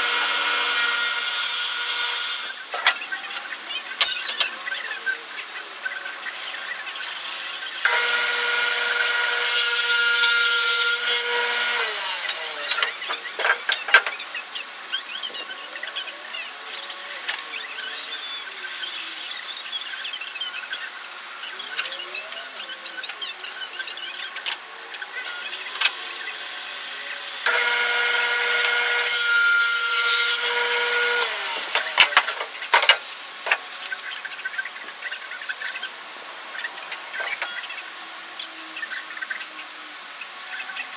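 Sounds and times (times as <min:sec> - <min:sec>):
table saw cutting wood: 0:00.0 - 0:03.2, 0:06.3 - 0:14.3, 0:25.2 - 0:33.0.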